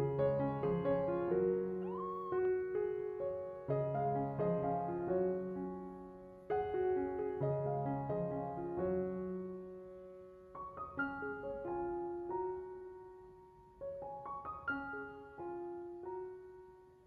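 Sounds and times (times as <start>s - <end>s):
gentle piano melody: 0.0s - 17.0s.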